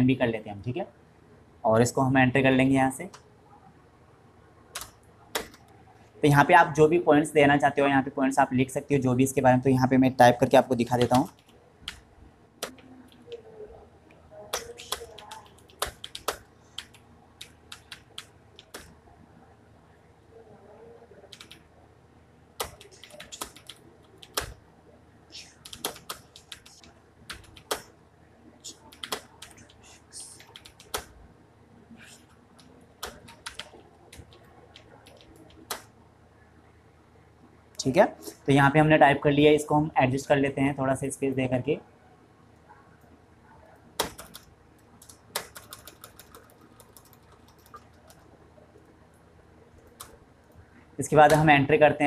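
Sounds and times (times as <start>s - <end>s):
computer keyboard keys clicking: 4.8s - 5.7s, 14.5s - 18.9s, 21.3s - 21.6s, 22.6s - 24.6s, 25.6s - 27.9s, 28.7s - 29.8s, 30.4s - 31.1s, 32.6s - 35.9s, 44.0s - 48.3s.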